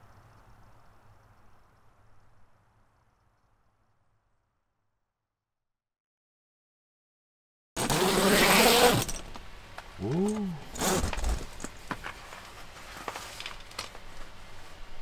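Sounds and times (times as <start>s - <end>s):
tent zipper pulled open: 7.8s - 9.2s, 10.7s - 11.6s.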